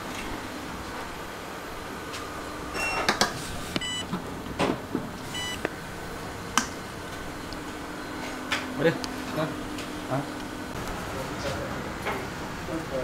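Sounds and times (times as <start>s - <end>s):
short electronic beeps: 3.8s - 4.0s, 5.3s - 5.6s.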